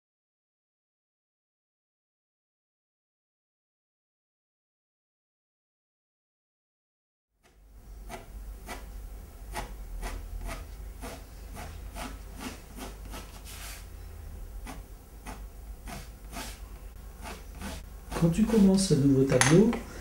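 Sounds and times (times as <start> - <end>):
steady low hum: 7.4 - 20.0
paintbrush scratching on canvas: 7.5 - 14.0, 14.6 - 19.2.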